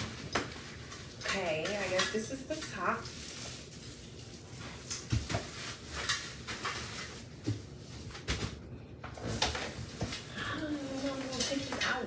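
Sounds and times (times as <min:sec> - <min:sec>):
packaging rustling: 0:00.0 - 0:08.6.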